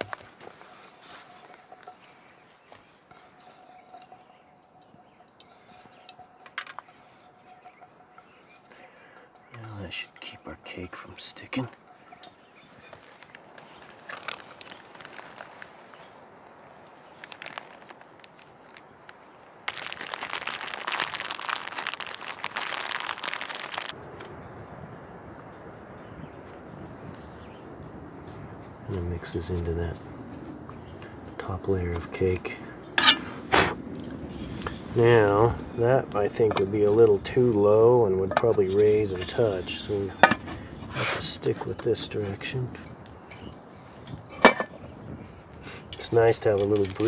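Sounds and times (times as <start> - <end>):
crinkling plastic packet: 13.0 - 24.0.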